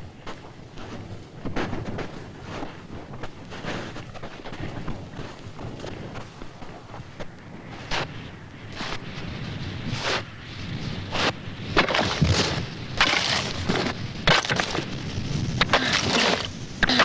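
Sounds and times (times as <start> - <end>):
axes striking ice: 11.8 - 14.9, 15.6 - 17.0
ice crunching and breaking: 11.8 - 15.0, 15.6 - 17.0.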